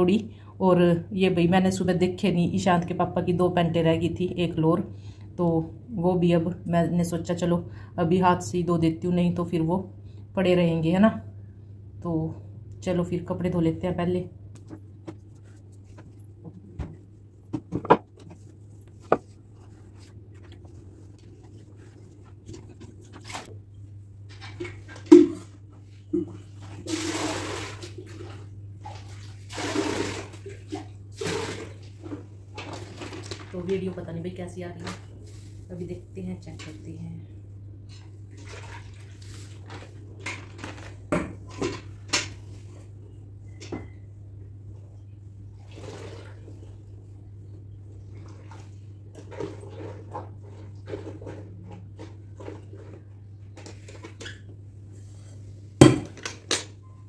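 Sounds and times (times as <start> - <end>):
steady low hum: 0.0 - 29.4, 30.3 - 57.0
clothes being moved: 14.6 - 23.6
household objects clattering: 15.9 - 20.8
plastic packet crinkling: 32.7 - 33.7.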